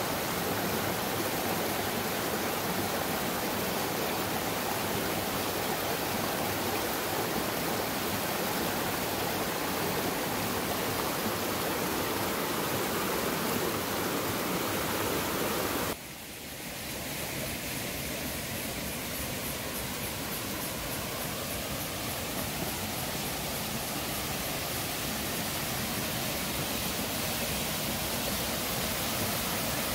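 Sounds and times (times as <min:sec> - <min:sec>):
stream rushing over rocks: 0:00.0 - 0:29.9.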